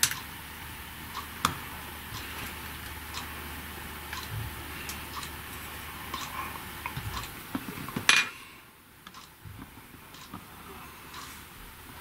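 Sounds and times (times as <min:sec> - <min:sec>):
metal tools tapping circuit board: 0:00.0 - 0:00.3.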